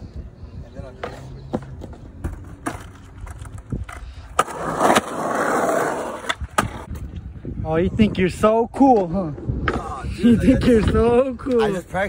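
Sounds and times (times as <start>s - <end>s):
skateboard wheels clacking: 1.0s - 6.9s.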